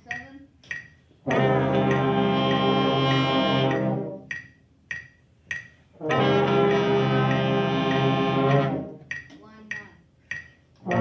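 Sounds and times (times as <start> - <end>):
sharp ticks: 0.0 - 1.0, 3.7 - 5.8, 9.0 - 11.0
brass ensemble playing long tones: 1.2 - 4.3, 6.0 - 9.0.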